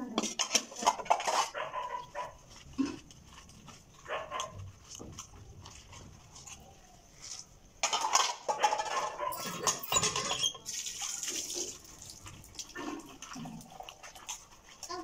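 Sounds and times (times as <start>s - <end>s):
steel pots and utensils clinking: 0.0s - 1.6s, 7.8s - 15.0s.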